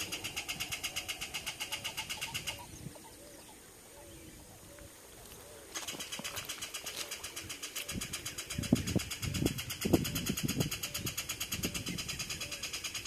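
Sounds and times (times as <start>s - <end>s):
kingfisher rattling call: 0.0s - 2.8s, 5.8s - 13.0s.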